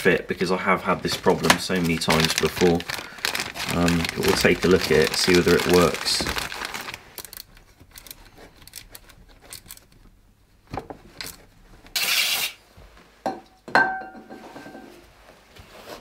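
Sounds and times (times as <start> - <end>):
plastic packaging rustling: 0.3 - 10.0.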